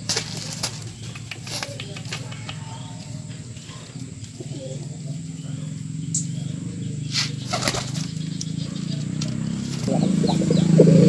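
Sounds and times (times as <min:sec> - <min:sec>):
pigeon wings flapping: 0:00.0 - 0:02.6, 0:07.2 - 0:08.2.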